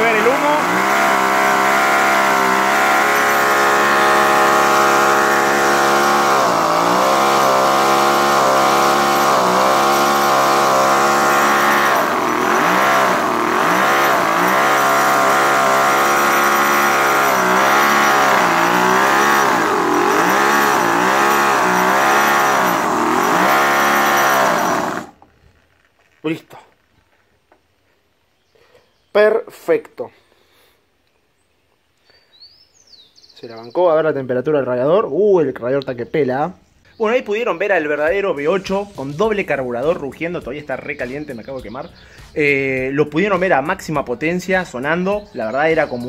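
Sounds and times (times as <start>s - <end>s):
model engine revving: 0.0s - 25.2s.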